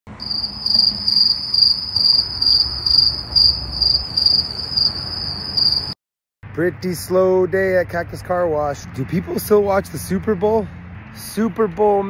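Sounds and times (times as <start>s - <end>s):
cricket trilling: 0.2s - 6.0s.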